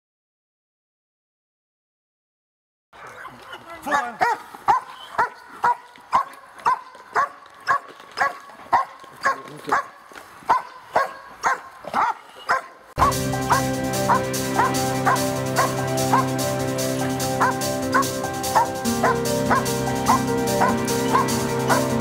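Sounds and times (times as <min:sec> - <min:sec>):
dog barking: 0:03.0 - 0:16.3, 0:17.4 - 0:22.0
loud background music: 0:13.0 - 0:22.0.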